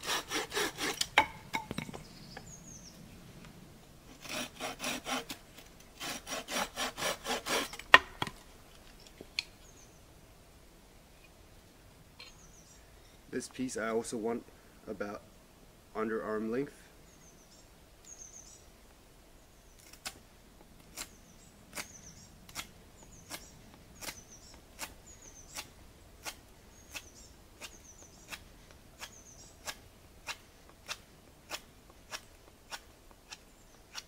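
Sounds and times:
knife carving wood: 0:00.0 - 0:01.3, 0:04.1 - 0:08.1, 0:23.3 - 0:34.0
faint birds twittering: 0:00.9 - 0:04.1, 0:07.4 - 0:15.4, 0:16.0 - 0:34.0.

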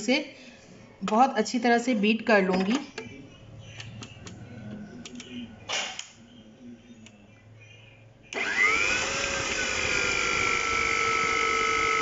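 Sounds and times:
stand mixer motor whining: 0:08.4 - 0:12.0.

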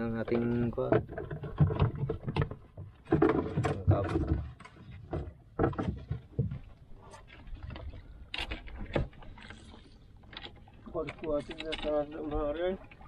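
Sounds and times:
fishing gear knocking in a boat: 0:00.3 - 0:06.8.

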